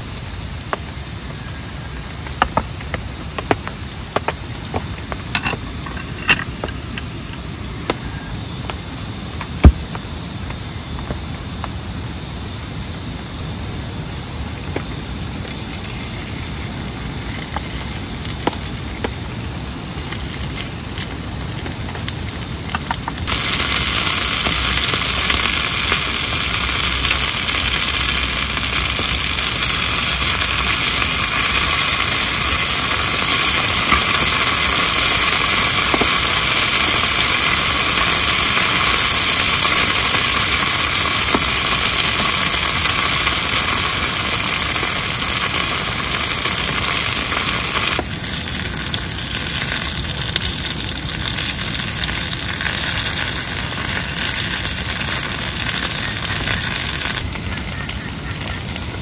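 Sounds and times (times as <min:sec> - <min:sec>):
meat sizzling on grill pan: 0:15.4 - 0:58.9.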